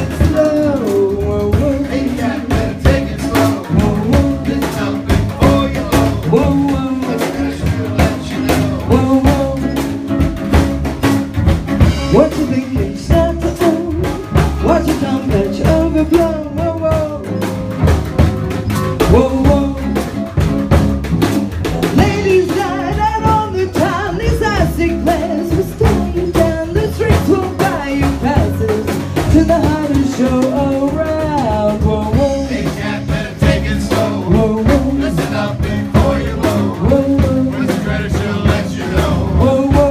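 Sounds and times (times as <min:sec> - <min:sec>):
woman singing into microphone: 0:00.0 - 0:04.8, 0:21.9 - 0:32.8, 0:39.3 - 0:39.9
swing band playing: 0:00.0 - 0:39.9.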